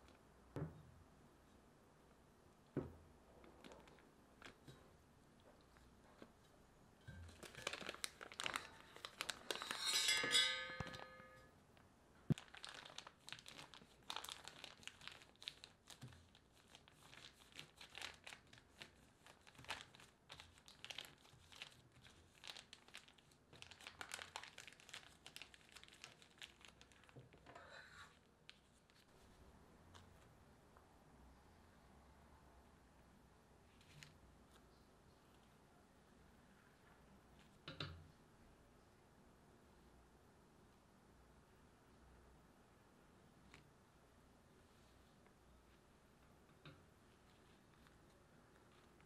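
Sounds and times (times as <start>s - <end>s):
plastic piping bag crinkling: 3.4s - 5.6s, 7.3s - 10.1s, 11.7s - 29.2s, 47.1s - 49.0s.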